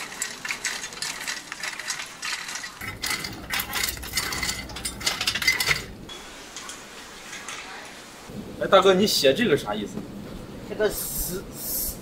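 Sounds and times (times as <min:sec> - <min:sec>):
metal rake dragging stones: 0:00.0 - 0:07.7
hot stones clattering: 0:00.0 - 0:07.8.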